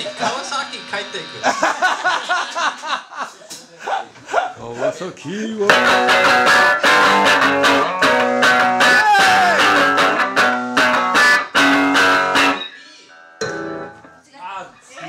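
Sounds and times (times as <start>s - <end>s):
electric guitar chords strummed: 5.7s - 14.2s.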